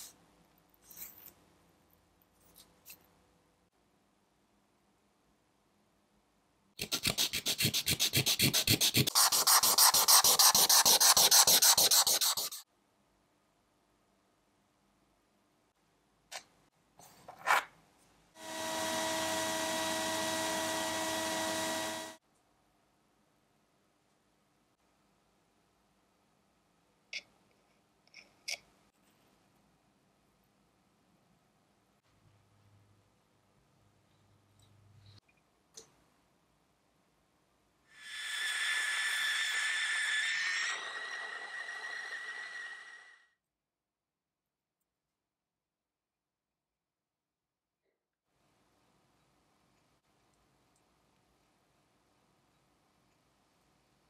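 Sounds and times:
sandblasting gun blasting: 18.4s - 22.2s
gas torch hissing: 38.0s - 43.2s.

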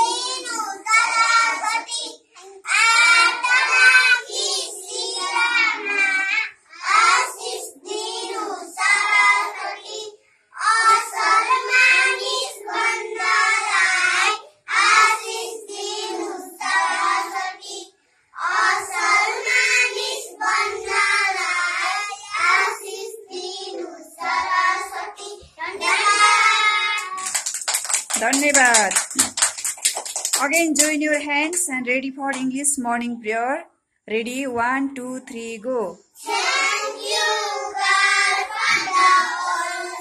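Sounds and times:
children singing in unison: 0.0s - 27.3s, 36.2s - 40.0s.

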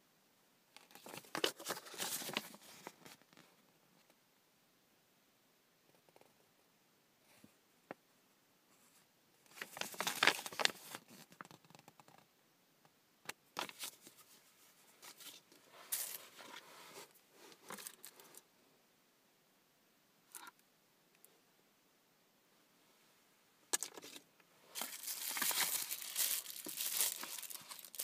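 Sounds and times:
paper and plastic rustling: 0.9s - 3.3s, 9.5s - 11.4s, 15.0s - 18.4s, 23.8s - 28.0s.

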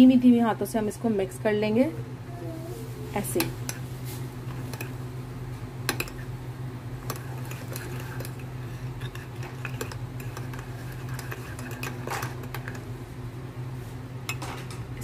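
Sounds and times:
spoon stirring in mug: 3.3s - 5.0s, 5.8s - 6.3s, 7.0s - 13.0s.

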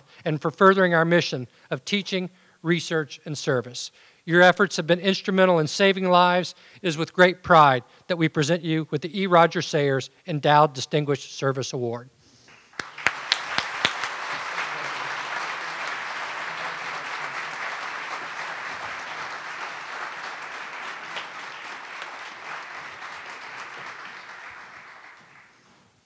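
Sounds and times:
audience applauding: 12.5s - 25.9s
close claps at microphone: 12.5s - 25.9s.

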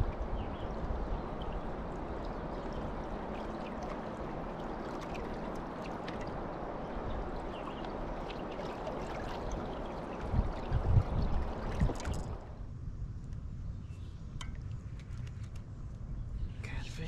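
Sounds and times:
water lapping against boat hull: 0.0s - 12.6s.

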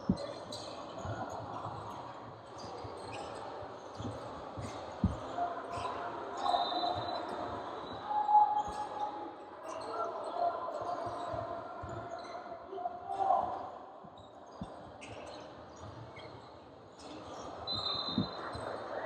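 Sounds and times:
shoe squeaks: 14.2s - 18.6s.

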